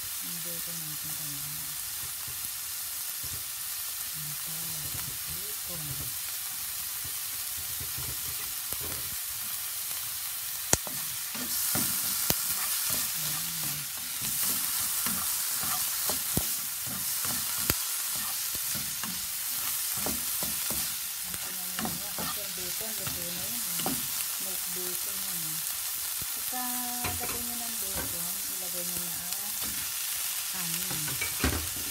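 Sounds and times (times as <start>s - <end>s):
onion and bacon sizzling: 0.0s - 31.9s
utensil tapping pan: 10.8s - 24.1s, 27.0s - 28.2s.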